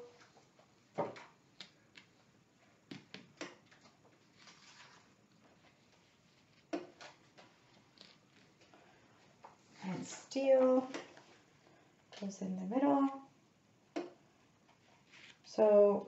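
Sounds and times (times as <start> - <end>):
plastic sheet rustling: 3.8 - 8.6.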